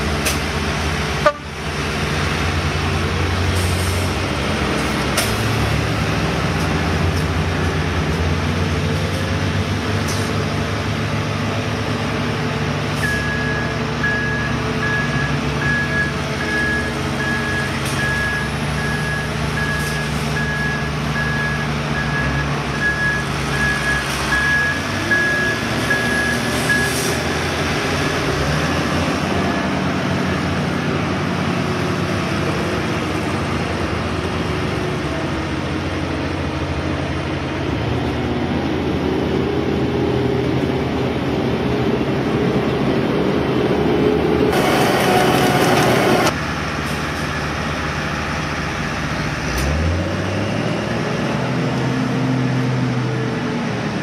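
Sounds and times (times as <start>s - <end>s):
truck engine running: 0.0s - 54.0s
backup alarm beeping: 13.0s - 26.9s.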